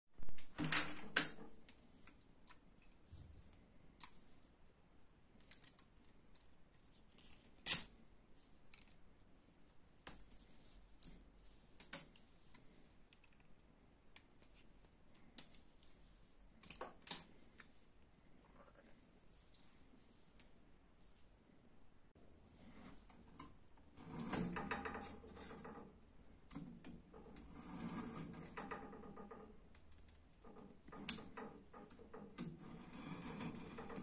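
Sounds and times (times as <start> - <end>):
wire clicks and rustles: 0.2 - 4.6, 5.3 - 21.3, 22.5 - 34.0.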